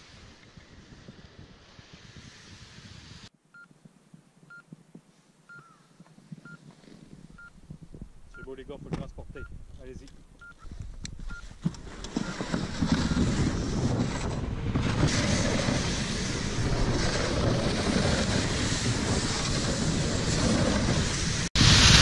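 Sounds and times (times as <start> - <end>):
sled and tracks rushing over snow: 0.0 - 3.3, 9.8 - 22.0
wind on microphone: 0.0 - 3.3, 6.2 - 10.0, 10.6 - 22.0.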